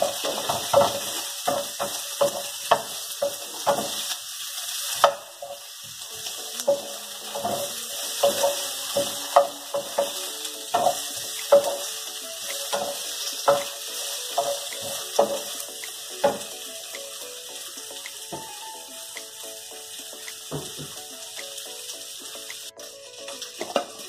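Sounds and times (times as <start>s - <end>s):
wooden spoon scraping a pan: 0.0s - 11.9s, 12.6s - 16.5s
meat sizzling in a frying pan: 0.0s - 24.0s.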